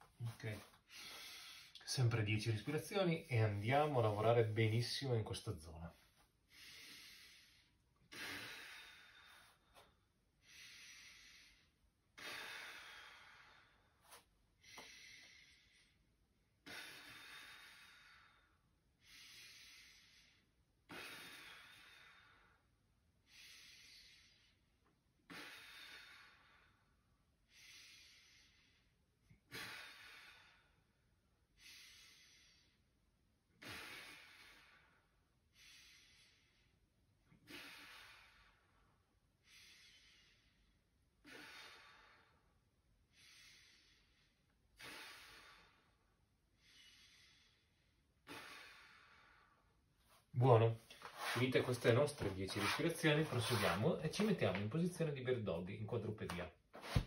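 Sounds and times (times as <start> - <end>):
man breathing deeply: 0.2 - 1.8, 6.5 - 31.0, 33.6 - 49.9.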